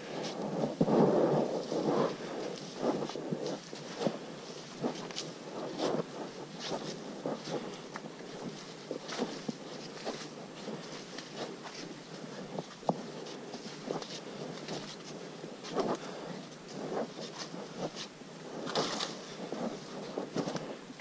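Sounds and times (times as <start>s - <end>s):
background hiss: 0.0s - 21.0s.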